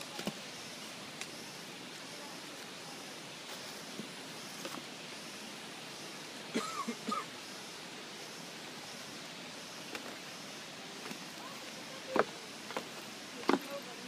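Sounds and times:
forest hiss: 0:00.0 - 0:14.0
flip-flops on wooden steps: 0:12.1 - 0:13.8.

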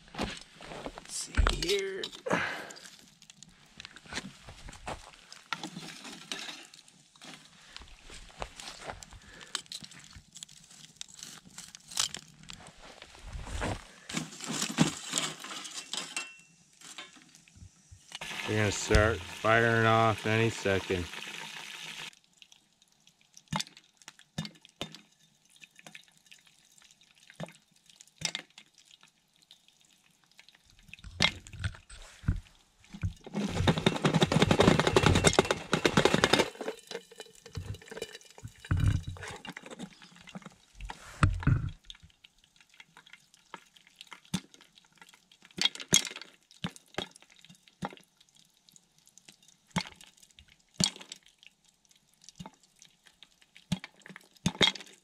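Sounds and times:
pot rattling and scraping on stove: 0:14.2 - 0:17.2, 0:33.0 - 0:41.7
popcorn popping: 0:33.1 - 0:36.9.

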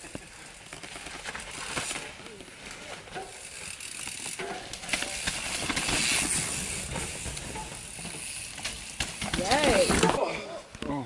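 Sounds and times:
bike clicks and rattles: 0:00.0 - 0:10.2
bike tyres sliding on dirt: 0:00.0 - 0:10.2.

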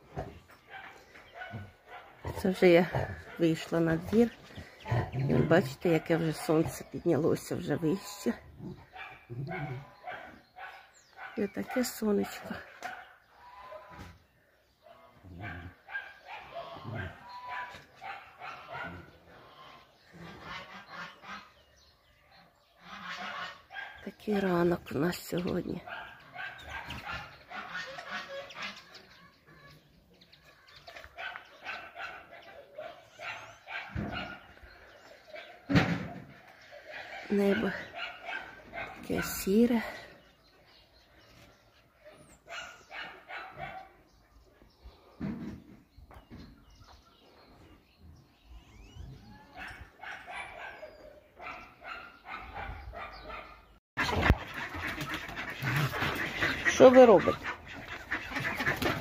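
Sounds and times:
farmyard animals calling: 0:00.0 - 0:59.0
dog barking: 0:00.6 - 0:02.4, 0:08.9 - 0:11.8, 0:12.4 - 0:14.1, 0:14.9 - 0:19.2, 0:23.6 - 0:24.1, 0:25.8 - 0:28.0, 0:31.1 - 0:34.6, 0:35.3 - 0:39.6, 0:42.1 - 0:44.0, 0:49.5 - 0:54.2.

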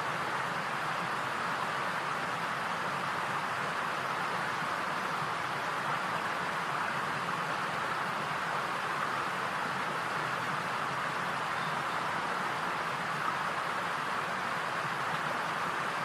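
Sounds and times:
steady hiss: 0:00.0 - 0:16.0.

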